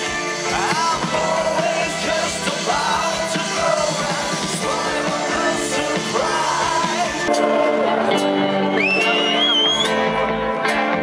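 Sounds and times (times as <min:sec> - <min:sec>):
crowd singing along: 0:00.0 - 0:11.0
live rock band playing: 0:00.0 - 0:11.0
crowd cheering: 0:03.7 - 0:11.0.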